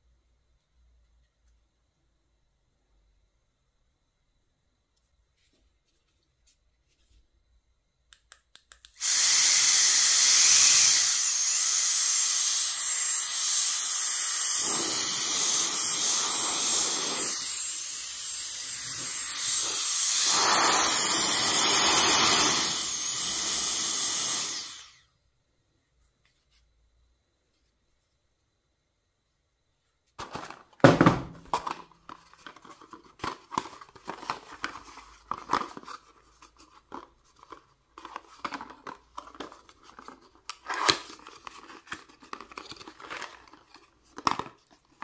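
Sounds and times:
jet fan rushing hiss and whine: 9.0s - 25.0s.

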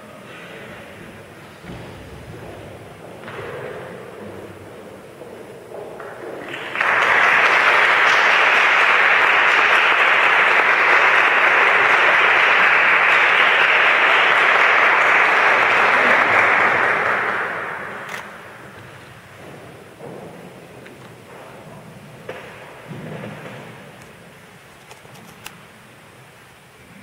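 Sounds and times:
audience applauding: 5.6s - 20.0s.

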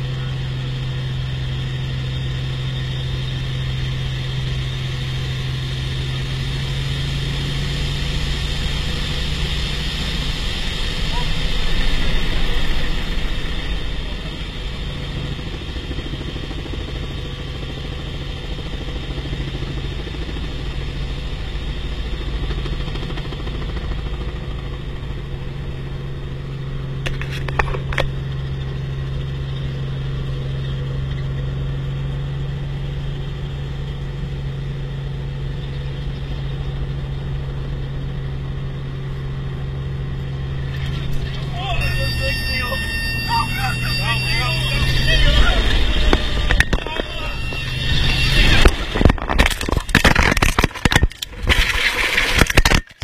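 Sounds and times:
helicopter engine and rotor drone: 0.0s - 53.0s.

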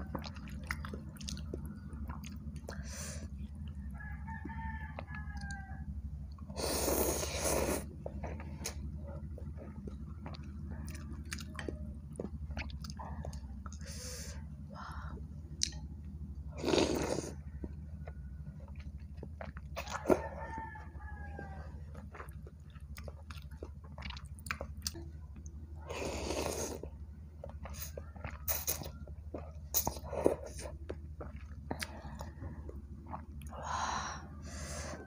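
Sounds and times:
wet chewing: 0.0s - 14.2s, 16.6s - 33.6s
rooster crowing: 3.9s - 6.0s, 19.8s - 22.0s
slurping noodles: 6.6s - 8.8s, 16.6s - 17.4s, 25.8s - 26.9s.

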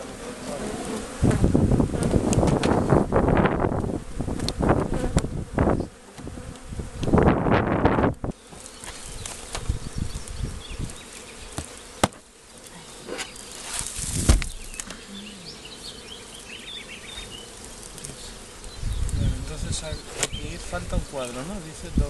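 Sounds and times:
bees buzzing: 0.0s - 22.0s
heavy thump of wooden hive parts: 2.0s - 3.0s, 11.5s - 12.3s, 14.0s - 15.0s.

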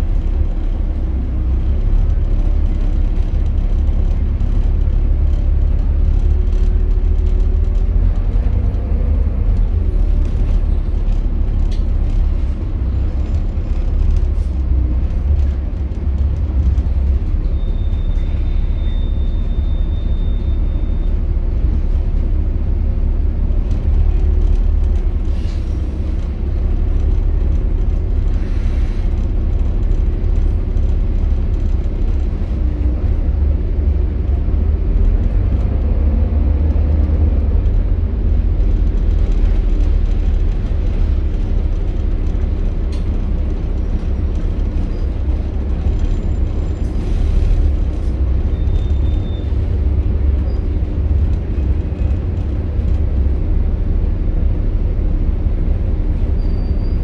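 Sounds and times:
bus diesel engine rumbling: 0.0s - 57.0s.

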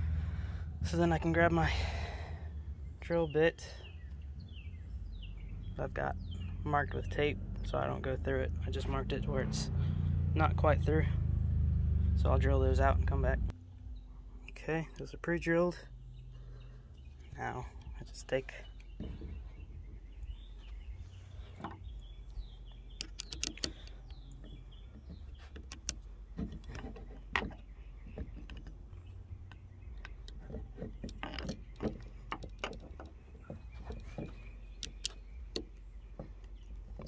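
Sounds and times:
steady low rumble: 0.0s - 37.0s
plastic parts clicking and knocking: 23.0s - 37.0s.

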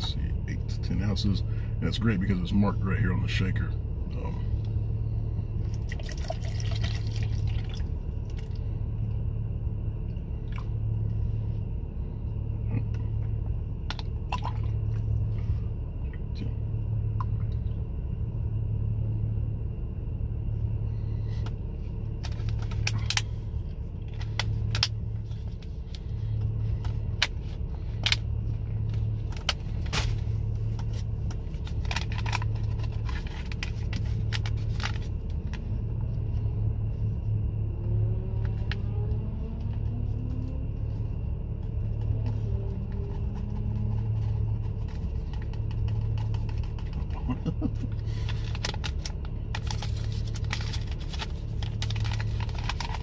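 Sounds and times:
low car interior hum: 0.0s - 53.0s
water pouring into plastic shaker: 5.8s - 7.9s.

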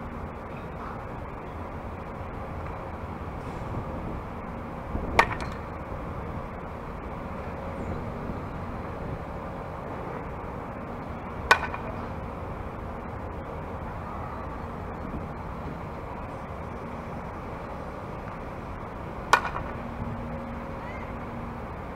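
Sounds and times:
steady outdoor noise: 0.0s - 21.9s
bat striking ball: 5.1s - 5.8s, 11.4s - 12.0s, 19.2s - 19.8s.

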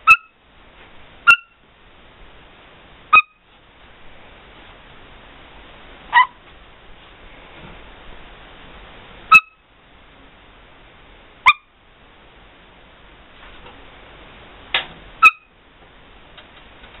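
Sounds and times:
parrot squeaks: 0.0s - 0.3s, 1.3s - 1.6s, 3.2s - 3.4s, 6.1s - 6.4s, 9.3s - 9.6s, 11.5s - 11.7s, 15.2s - 15.5s
parrot squawk: 0.0s - 0.4s, 1.3s - 1.6s, 3.1s - 3.4s, 6.1s - 6.4s, 9.3s - 9.6s, 11.4s - 11.7s, 15.2s - 15.5s.

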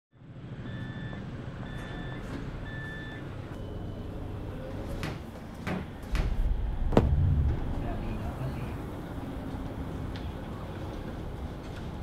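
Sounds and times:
door warning beeps: 0.6s - 4.0s
tram rumble: 4.0s - 12.0s.

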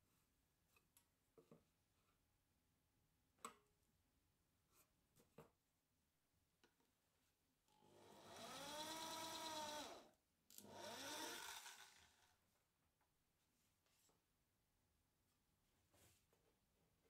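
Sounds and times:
electric drill whining: 7.8s - 12.3s.

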